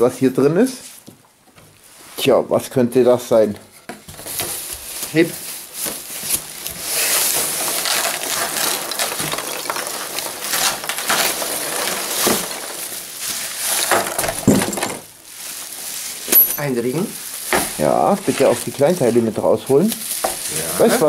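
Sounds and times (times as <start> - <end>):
plastic wrap crinkling: 4.1 - 21.0
packing peanuts rustling and crunching: 4.2 - 21.0.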